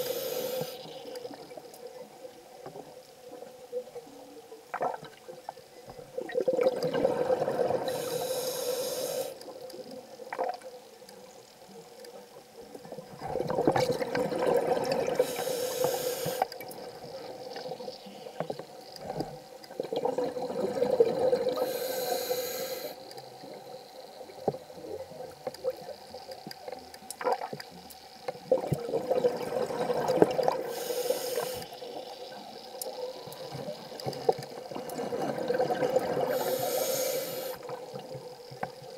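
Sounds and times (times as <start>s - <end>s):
regulator hiss: 0.0s - 1.4s, 7.8s - 9.6s, 15.2s - 16.5s, 21.4s - 26.8s, 30.5s - 34.2s, 36.1s - 38.4s
underwater regulator bubbling: 13.2s - 17.8s, 32.7s - 38.1s.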